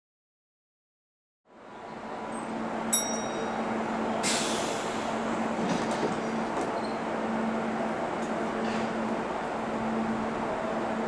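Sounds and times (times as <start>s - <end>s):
train equipment humming: 1.6s - 11.0s
short high ring: 2.9s - 3.6s
brief hiss of air: 4.2s - 5.2s.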